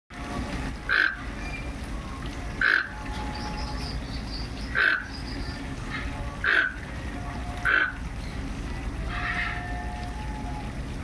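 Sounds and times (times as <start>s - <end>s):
toucan harsh calls: 2.6s - 3.0s, 4.6s - 5.4s, 7.6s - 8.0s.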